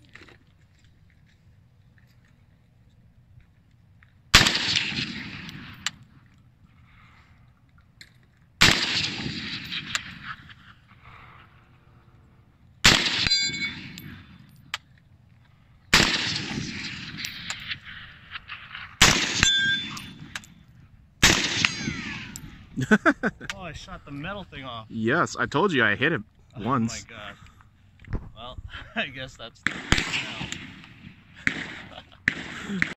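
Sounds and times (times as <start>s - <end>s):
rifle shots with echo: 4.3s - 6.0s, 8.6s - 10.6s, 12.8s - 14.5s, 15.9s - 20.6s, 21.2s - 22.7s, 29.6s - 32.9s
steel target ringing: 13.1s - 14.3s, 19.2s - 20.6s.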